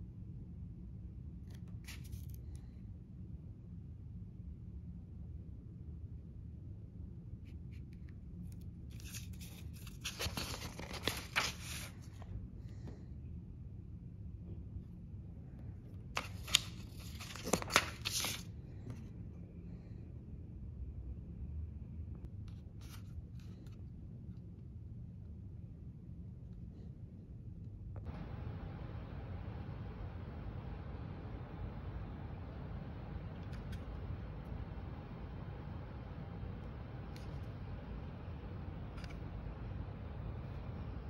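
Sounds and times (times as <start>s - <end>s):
paper page rustling: 1.5s - 2.4s, 8.9s - 12.3s, 16.2s - 18.5s, 22.8s - 23.8s, 36.3s - 39.3s
plastic smoke alarm rustling: 8.9s - 12.2s, 16.2s - 18.5s, 28.0s - 41.0s
low rumble: 28.0s - 41.0s.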